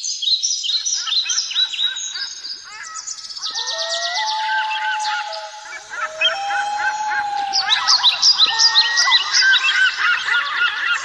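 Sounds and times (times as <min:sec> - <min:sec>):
birds chirping: 0:01.0 - 0:11.0
long steady whistled note: 0:03.6 - 0:10.0.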